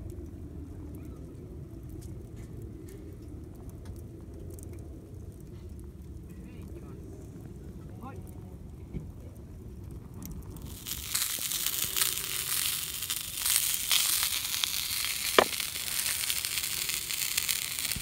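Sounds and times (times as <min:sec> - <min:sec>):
sausages sizzling and popping: 0:09.5 - 0:18.0.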